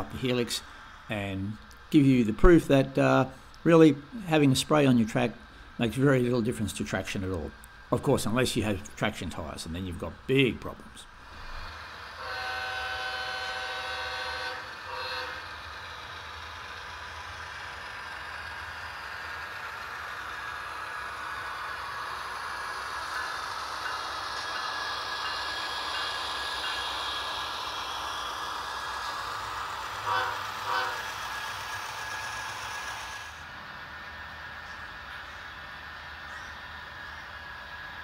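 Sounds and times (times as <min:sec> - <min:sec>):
diesel engine running: 0:00.0 - 0:38.0
model locomotive horn: 0:12.1 - 0:15.7, 0:30.0 - 0:31.2.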